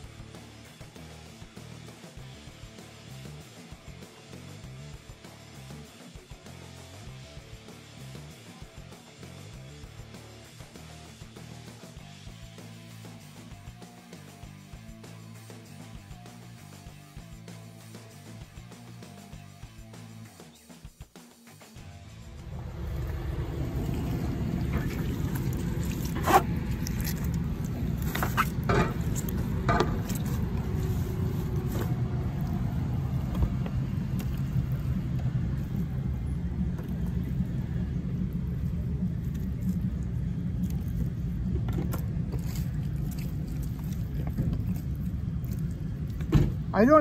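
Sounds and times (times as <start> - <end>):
low rumble: 22.0 - 47.0.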